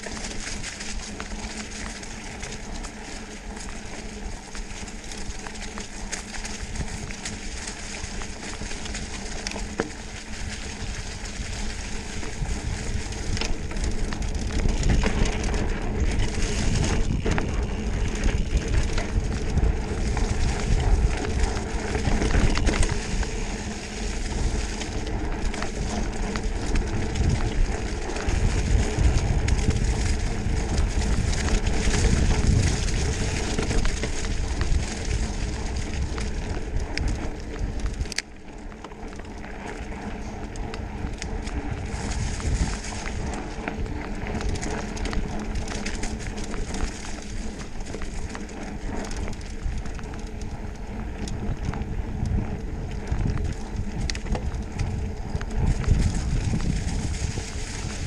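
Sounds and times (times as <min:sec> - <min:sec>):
bike knocks and rattles: 0:00.0 - 0:58.0
tyres rolling on dirt: 0:00.0 - 0:58.0
wind buffeting microphone: 0:03.4 - 0:58.0.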